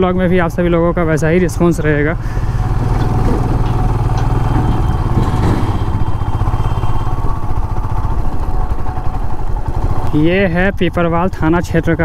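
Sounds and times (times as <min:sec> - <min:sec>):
motorcycle engine running: 0:02.0 - 0:12.0.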